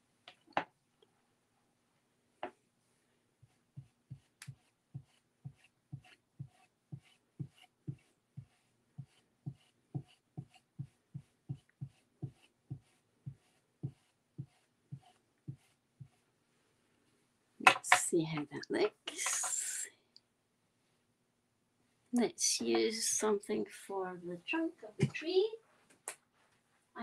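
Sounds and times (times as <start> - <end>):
ink applicator tapping paper: 3.8 - 16.2.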